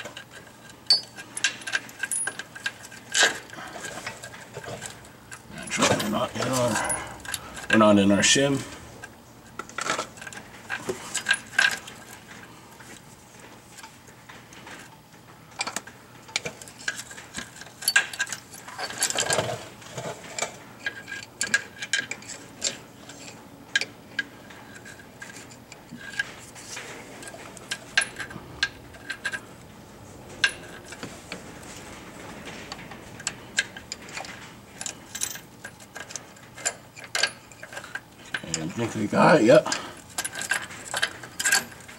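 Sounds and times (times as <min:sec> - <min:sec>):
small metal hardware clinking: 0:00.9 - 0:03.4, 0:16.4 - 0:19.6, 0:39.7 - 0:41.9.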